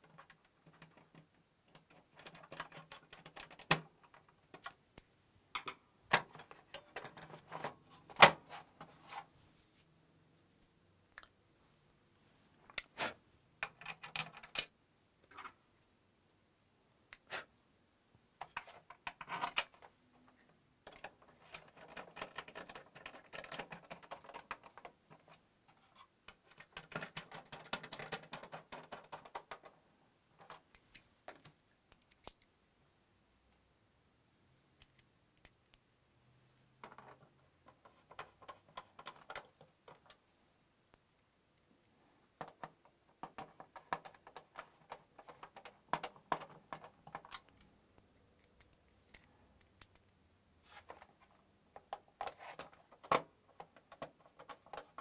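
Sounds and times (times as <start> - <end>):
plastic parts clicking and tapping: 0.0 - 8.9, 13.6 - 15.6, 18.4 - 29.8, 36.8 - 40.2, 42.3 - 50.2, 50.8 - 55.0.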